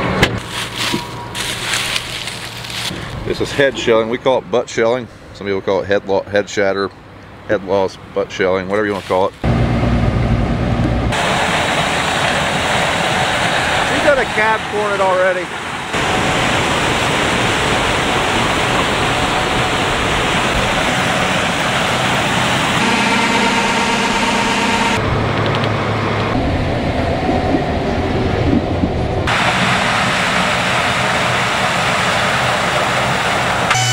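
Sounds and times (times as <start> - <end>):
harvester machinery running: 0.0 - 4.0, 9.4 - 33.9
muffled engine hum inside cab: 9.4 - 13.6, 18.5 - 33.9.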